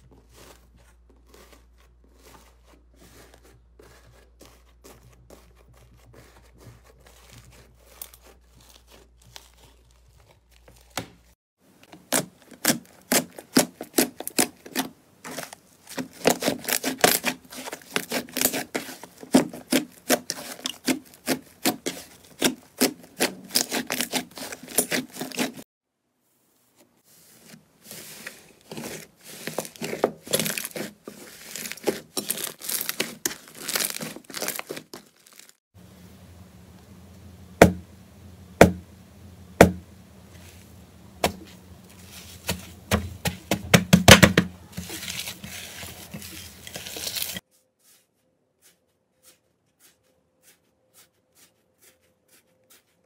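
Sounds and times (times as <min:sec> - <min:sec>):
slime crackling and popping: 0:31.4 - 0:35.6.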